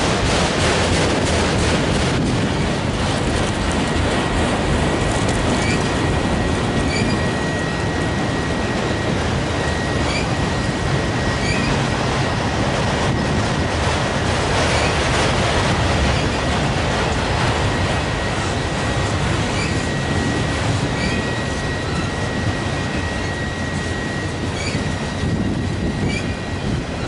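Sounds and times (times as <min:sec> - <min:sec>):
train wheels rumbling on rail: 0:00.0 - 0:27.0.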